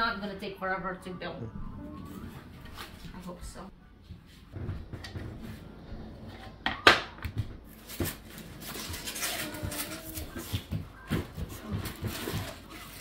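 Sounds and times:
rustling: 7.7 - 13.0.

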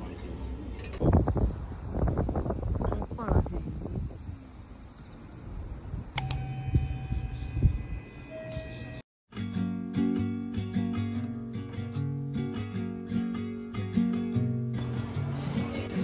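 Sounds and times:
crickets trilling: 1.0 - 6.2.

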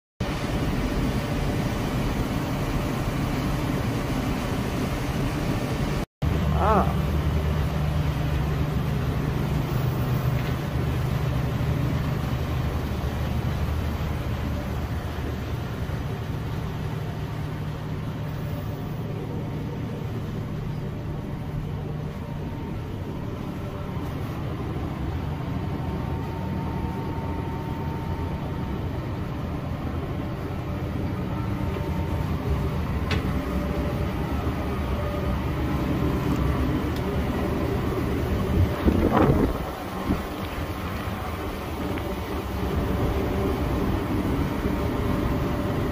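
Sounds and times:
diesel engine drone: 0.2 - 45.9.

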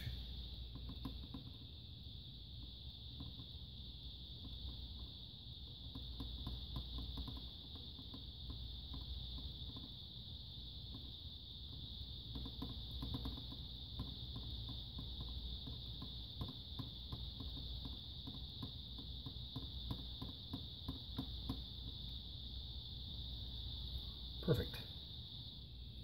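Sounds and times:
high-pitched whine: 0.0 - 0.8.

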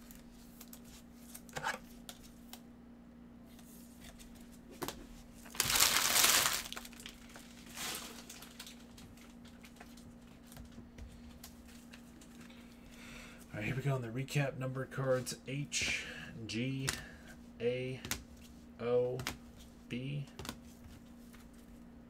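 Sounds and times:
faint steady hum: 0.0 - 22.0
foil wrappers rustling: 5.4 - 10.6.

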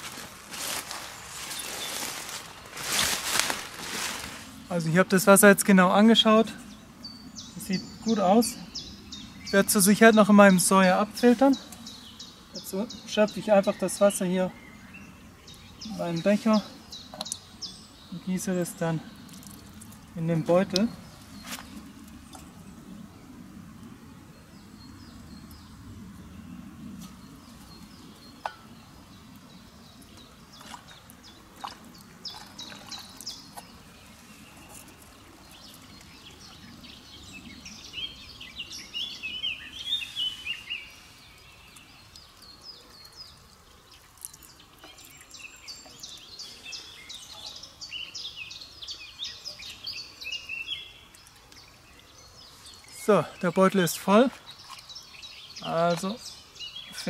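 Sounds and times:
songbirds chirping: 0.0 - 57.0
faint water splashing: 27.0 - 37.8.

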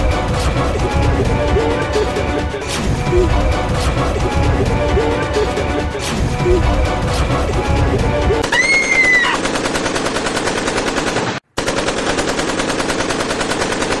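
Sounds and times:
automatic rifle fire: 9.4 - 14.0.

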